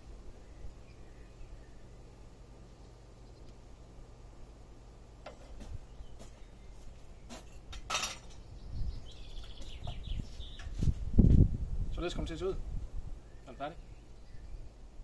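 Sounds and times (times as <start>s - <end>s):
bird chirping: 0.3s - 3.6s, 5.8s - 11.0s, 13.2s - 14.9s.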